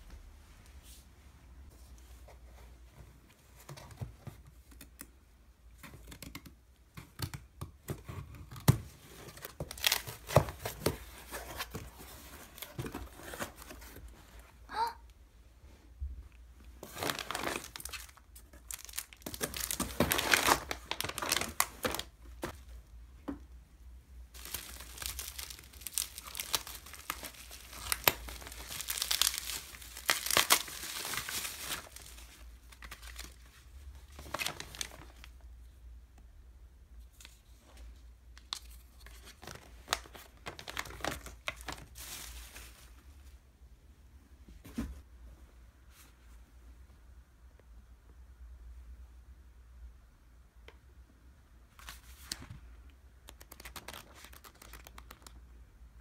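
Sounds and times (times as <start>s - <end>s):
bubble wrap crinkling and tearing: 9.3s - 11.8s, 16.8s - 22.6s, 24.3s - 33.4s, 34.1s - 35.3s, 38.6s - 43.0s, 53.2s - 55.4s.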